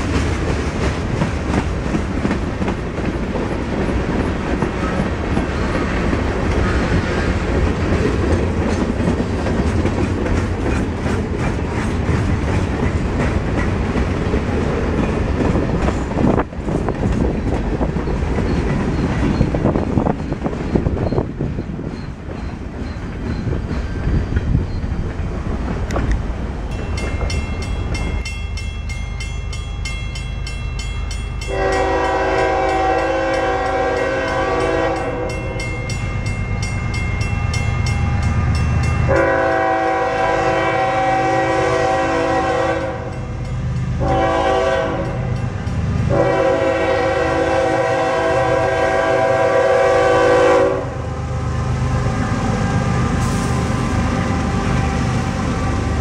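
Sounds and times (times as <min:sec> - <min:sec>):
crossing bell ringing: 0:26.7 - 0:40.3, 0:42.9 - 0:46.3
locomotive horn: 0:31.5 - 0:35.6, 0:39.1 - 0:43.3, 0:44.0 - 0:45.4, 0:46.1 - 0:51.2, 0:51.9 - 0:55.3.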